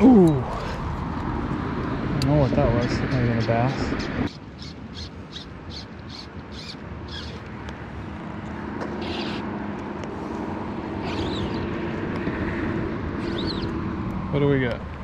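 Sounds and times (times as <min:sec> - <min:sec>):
distant vehicle engine hum: 0:00.0 - 0:15.0
bird chirping: 0:04.3 - 0:07.4, 0:11.0 - 0:11.7, 0:13.2 - 0:13.8.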